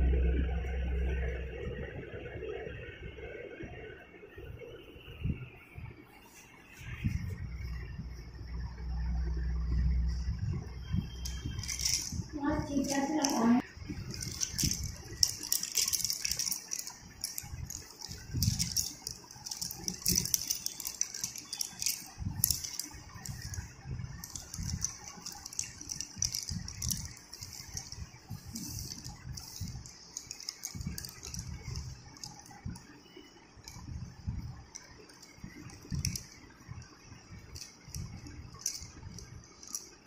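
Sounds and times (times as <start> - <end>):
chalk sticks clattering: 11.2 - 32.6, 37.4 - 40.0.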